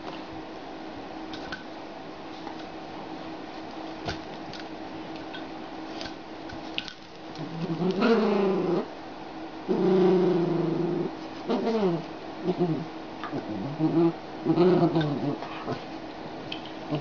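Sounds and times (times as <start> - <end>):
dog growling and moaning: 7.4 - 8.9, 9.7 - 15.9.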